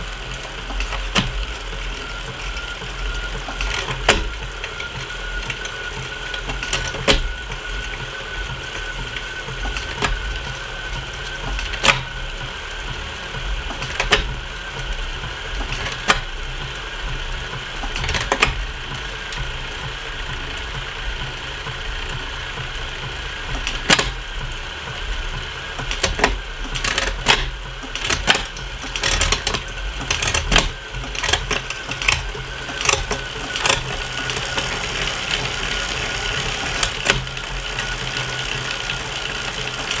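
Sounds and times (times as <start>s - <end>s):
bicycle drivetrain whine: 0.0s - 40.0s
derailleur shift clicks: 23.5s - 24.2s, 25.8s - 34.7s.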